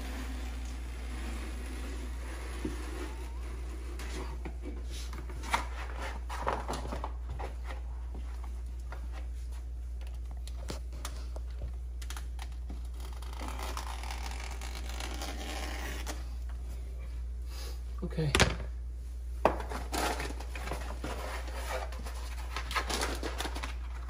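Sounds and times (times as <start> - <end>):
hand tool scraping wallpaper: 0.0 - 6.5, 19.7 - 23.3
steady low hum: 0.0 - 24.0.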